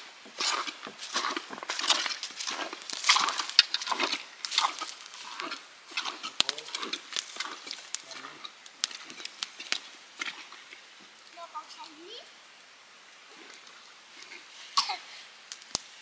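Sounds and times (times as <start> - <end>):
footsteps crunching through dry grass: 0.0 - 11.2.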